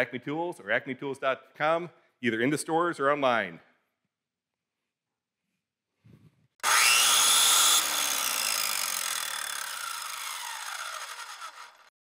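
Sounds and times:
power tool whining and cutting: 6.6 - 11.9.

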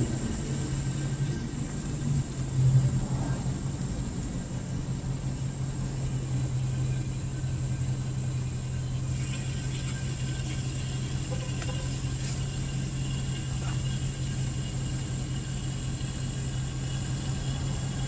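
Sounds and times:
high-pitched whine: 0.0 - 18.0
low background rumble: 0.0 - 18.0
low mechanical hum: 0.0 - 18.0.

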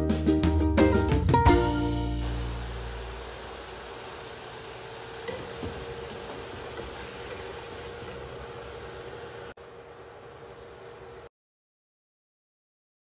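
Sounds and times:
fries sizzling in oil: 1.8 - 11.3.

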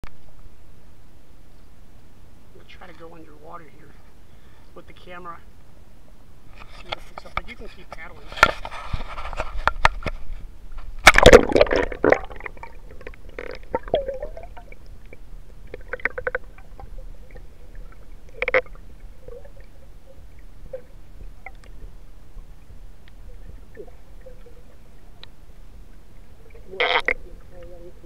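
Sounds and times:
loud splash into water: 11.0 - 12.7
underwater gurgling bubbles: 11.1 - 28.0.

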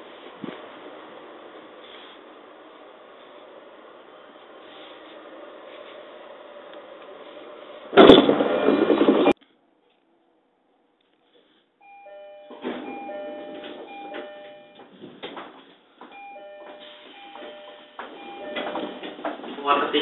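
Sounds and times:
electronic chime melody: 11.8 - 14.8, 16.2 - 19.2.

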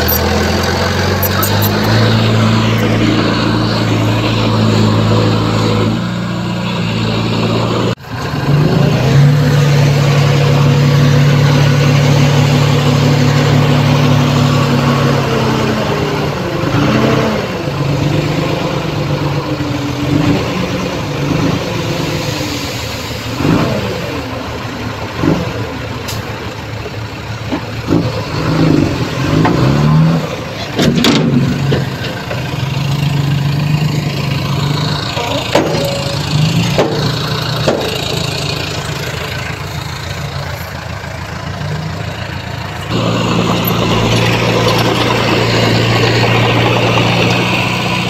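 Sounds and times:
diesel engines revving: 0.0 - 48.0
steady engine hum: 0.0 - 48.0.

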